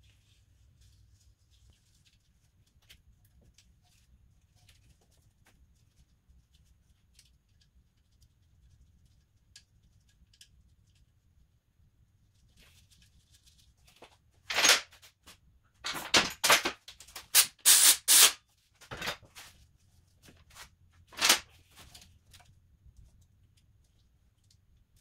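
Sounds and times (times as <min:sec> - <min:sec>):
short sharp rasping noises: 0:17.3 - 0:18.4.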